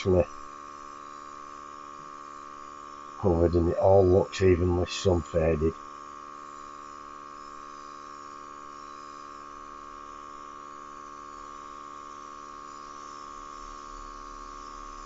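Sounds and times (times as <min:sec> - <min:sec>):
compressor humming: 0:00.0 - 0:00.5, 0:03.0 - 0:05.8.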